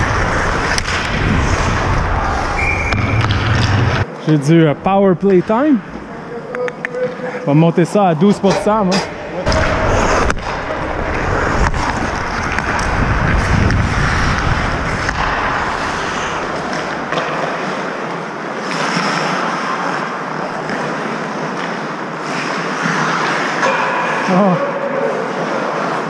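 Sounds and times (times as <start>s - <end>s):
wind rushing over microphone: 0.0s - 4.0s, 9.5s - 17.1s.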